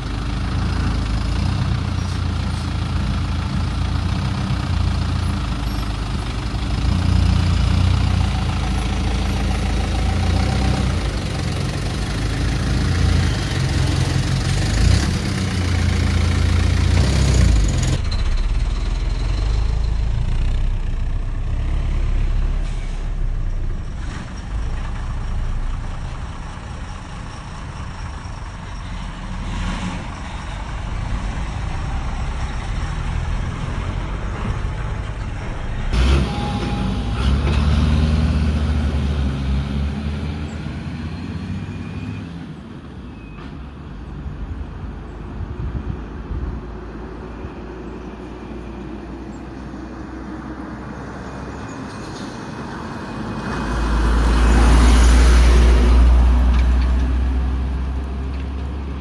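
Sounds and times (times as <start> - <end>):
bus engine idling: 0.0 - 21.7, 22.3 - 29.4.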